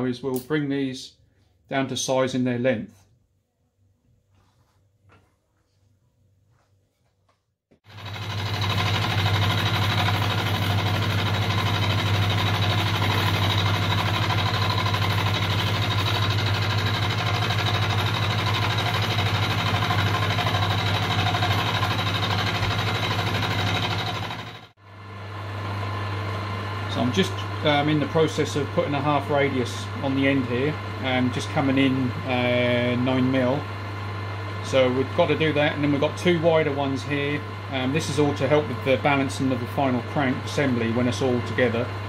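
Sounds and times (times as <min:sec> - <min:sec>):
milling machine running: 0:07.9 - 0:24.7.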